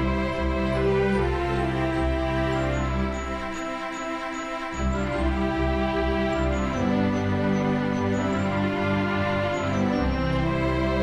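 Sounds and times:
soft instrumental music: 0:00.0 - 0:11.0.

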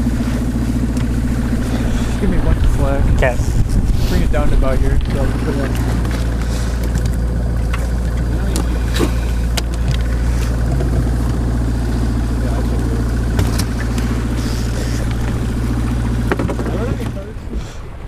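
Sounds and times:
outboard motor running: 0:00.0 - 0:18.0.

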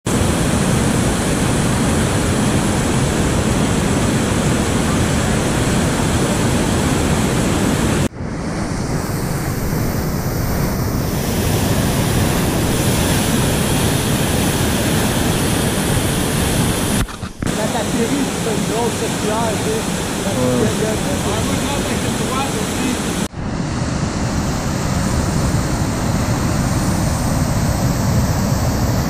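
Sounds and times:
whitewater rushing over boulders: 0:10.5 - 0:23.3.

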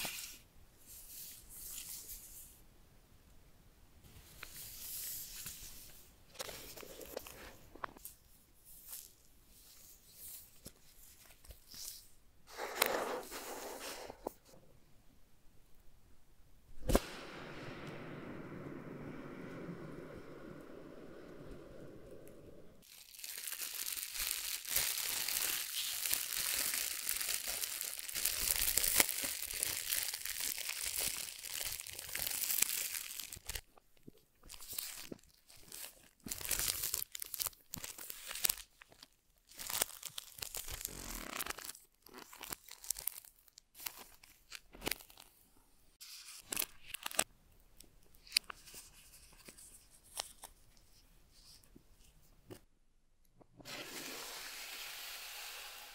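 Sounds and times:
plastic film tearing and crinkling: 0:22.8 - 0:33.7, 0:34.4 - 0:45.3, 0:46.2 - 0:47.3
plastic rustling: 0:22.8 - 0:45.3.

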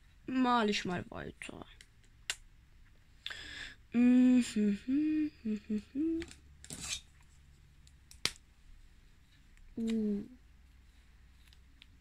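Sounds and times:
person humming a tune: 0:03.9 - 0:06.4, 0:09.8 - 0:10.4.

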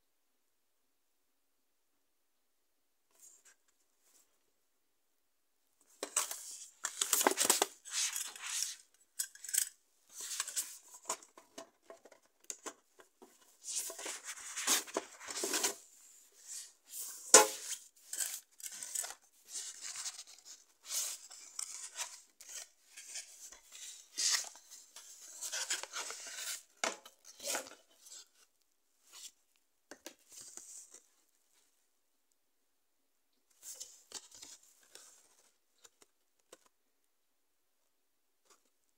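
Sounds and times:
dvd packaging rustling: 0:06.0 - 0:15.9.

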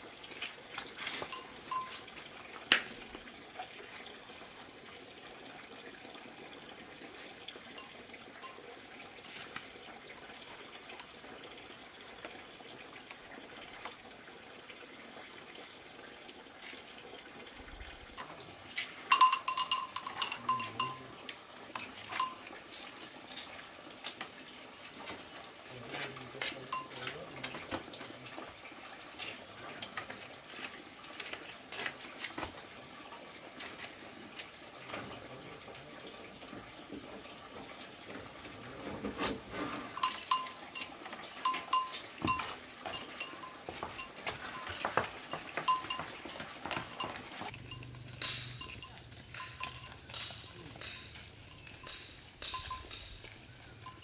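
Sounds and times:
small metal bell ringing: 0:01.3 - 0:02.1, 0:07.8 - 0:08.7, 0:19.1 - 0:21.2, 0:21.8 - 0:22.6, 0:26.7 - 0:27.2, 0:39.9 - 0:54.0.

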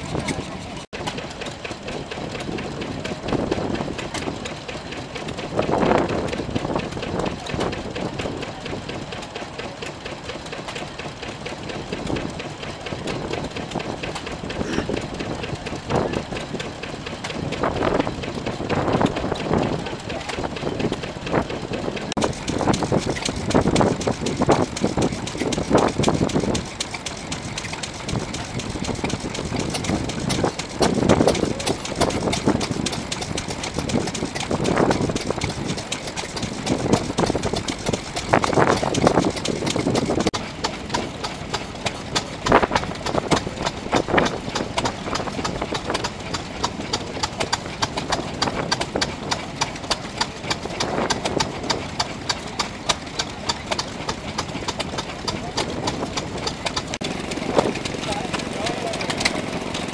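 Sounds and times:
stationary engines running: 0:00.0 - 0:59.9.

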